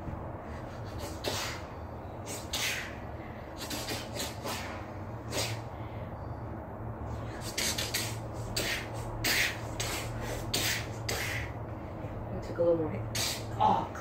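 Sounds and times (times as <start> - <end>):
steady low hum: 0.0 - 14.0
hissing breath puffs: 0.4 - 6.2, 7.1 - 11.7.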